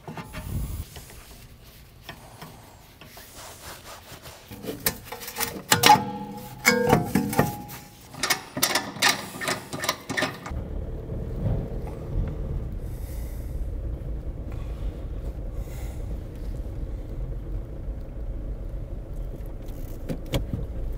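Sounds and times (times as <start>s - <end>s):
car engine rumbling: 0.0s - 3.3s, 4.5s - 20.9s
metallic clicks of wheel bolts: 4.8s - 10.6s.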